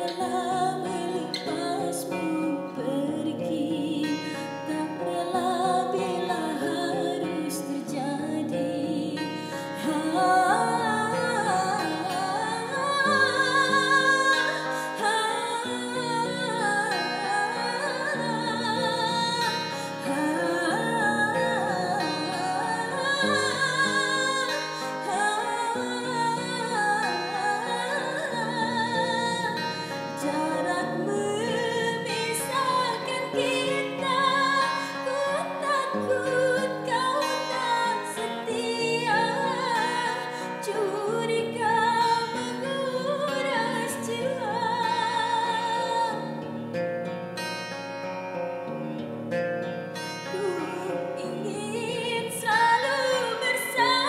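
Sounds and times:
woman singing a slow ballad: 0.0s - 46.5s, 50.0s - 54.0s
acoustic guitar: 0.0s - 54.0s.

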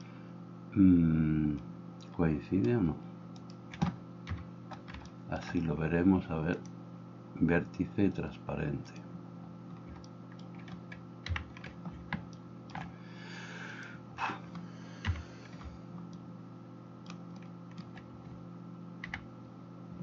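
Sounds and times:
low electrical hum: 0.0s - 20.0s
keyboard and mouse clicks: 3.4s - 5.2s, 9.7s - 12.9s, 17.0s - 18.4s.

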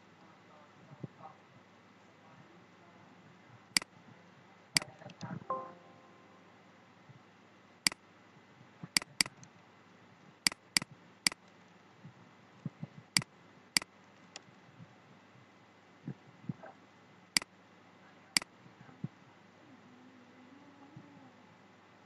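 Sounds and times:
mouse clicks: 8.9s - 9.5s, 10.5s - 11.5s, 13.2s - 14.5s
keyboard keystrokes: 9.0s - 9.5s.

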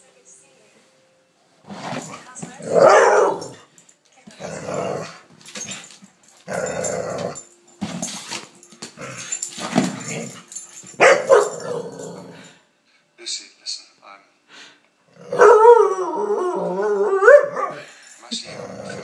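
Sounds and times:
dog growling and barking: 1.6s - 3.7s, 4.4s - 8.2s, 9.0s - 12.6s, 15.1s - 19.0s.

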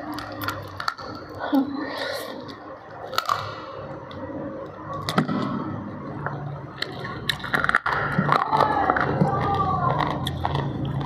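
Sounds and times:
chewing crispy fried chicken: 8.4s - 11.0s.

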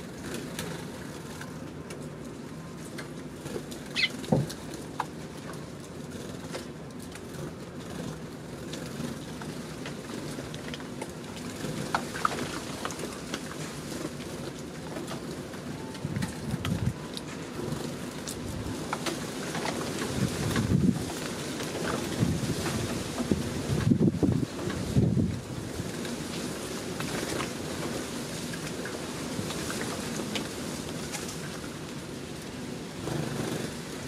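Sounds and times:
steady rain: 0.0s - 34.0s
sparrows chirping: 3.9s - 4.2s.

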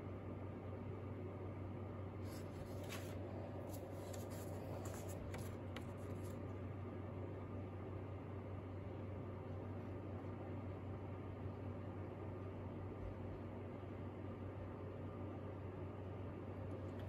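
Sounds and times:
steady low hum: 0.0s - 17.0s
paper sheets rustling and sliding: 2.2s - 6.4s.

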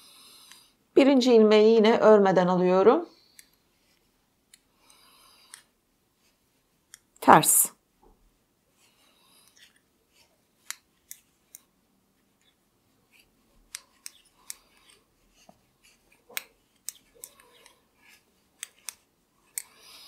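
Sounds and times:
knitting needles clicking: 9.4s - 11.7s, 12.4s - 20.0s.

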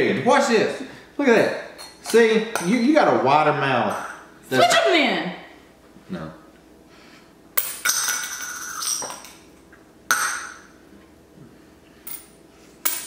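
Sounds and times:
coin clinking and rattling in cup: 7.6s - 9.3s.

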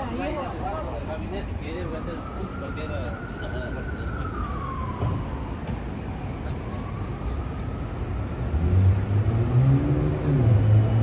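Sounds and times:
distant siren wailing: 1.0s - 11.0s
passing vehicle engine: 8.3s - 11.0s.

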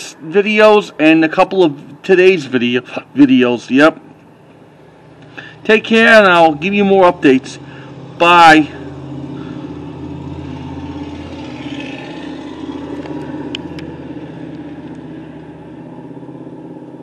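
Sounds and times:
vehicle engines humming: 0.0s - 17.0s
pickup truck driving past: 4.6s - 17.0s.

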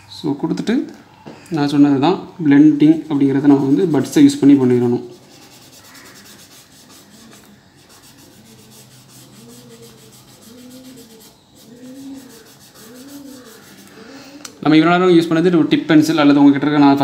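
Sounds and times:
cotton bud rubbing on paper: 2.8s - 14.4s.

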